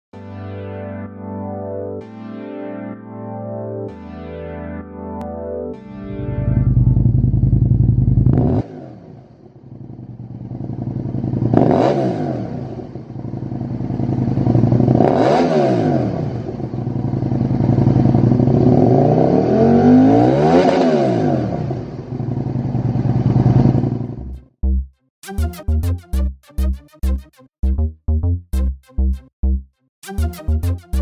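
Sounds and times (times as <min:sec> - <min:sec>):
motorcycle engine idling and revving: 0:06.1 - 0:24.5.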